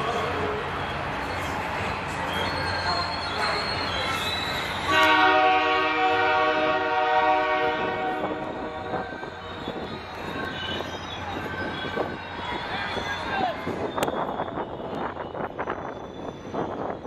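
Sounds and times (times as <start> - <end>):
train wheels on rails: 0.0 - 17.0
locomotive air horn: 4.9 - 9.4.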